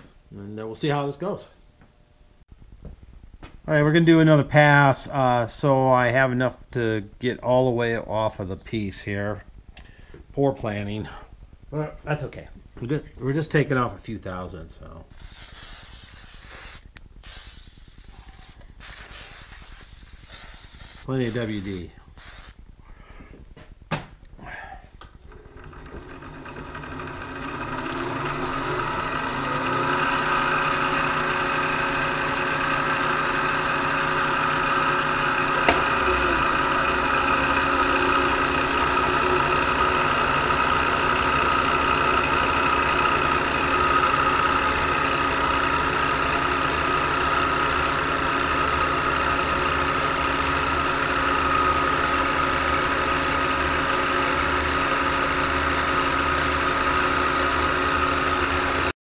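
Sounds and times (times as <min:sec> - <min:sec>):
milling machine drone: 0:25.2 - 0:58.9.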